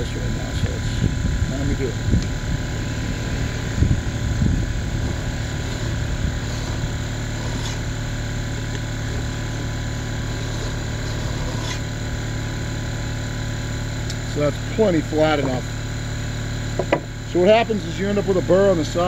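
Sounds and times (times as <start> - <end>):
mechanical hum: 0.0 - 19.0
file scraping chainsaw bar: 5.6 - 8.0, 10.2 - 12.0.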